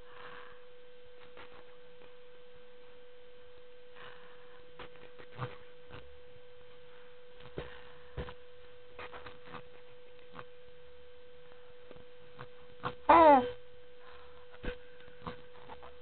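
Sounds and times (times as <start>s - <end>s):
faint steady tone: 0.0s - 16.0s
soft taps and rustles: 7.4s - 8.4s.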